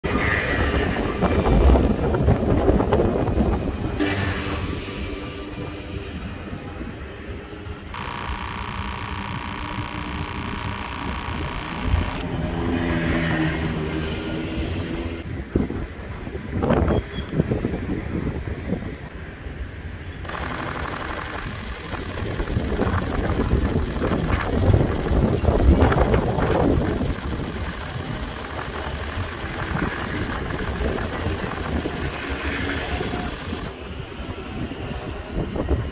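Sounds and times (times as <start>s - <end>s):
camera shutter burst: 8.0s - 12.2s, 20.2s - 33.7s.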